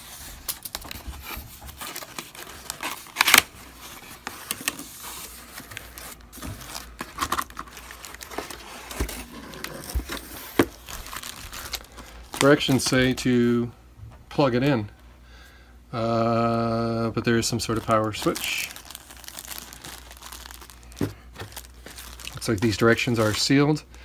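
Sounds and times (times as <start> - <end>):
cardboard tearing: 0.0 - 12.9, 17.8 - 23.4
plastic packaging crinkling: 0.0 - 13.3, 17.2 - 23.8
cardboard rubbing and scraping: 1.0 - 11.4.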